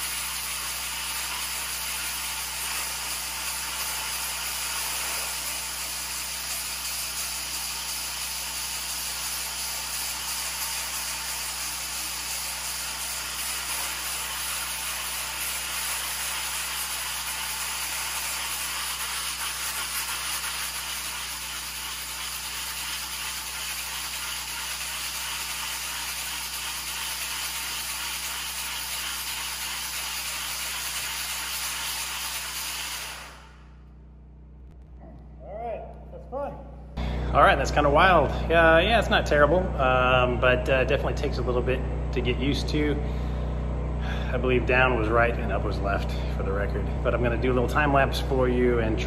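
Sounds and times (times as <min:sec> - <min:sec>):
floor machine grinding concrete: 0:00.0 - 0:33.4, 0:37.1 - 0:49.0
low motor hum: 0:33.4 - 0:49.0.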